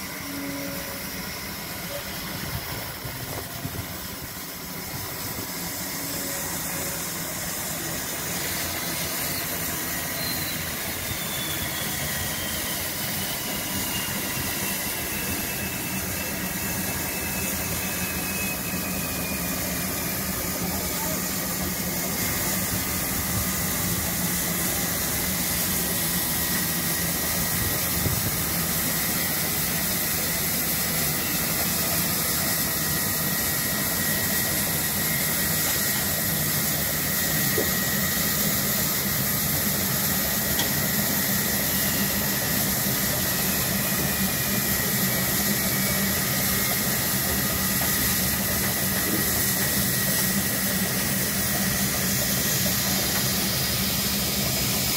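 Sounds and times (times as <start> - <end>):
steam hissing: 0.0 - 54.9.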